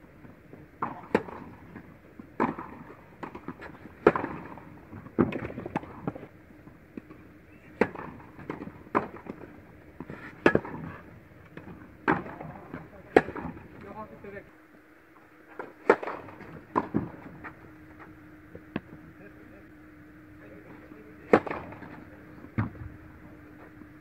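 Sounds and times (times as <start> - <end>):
tennis balls struck by rackets: 0.7 - 6.3, 6.9 - 14.0, 15.5 - 19.0, 21.2 - 23.0.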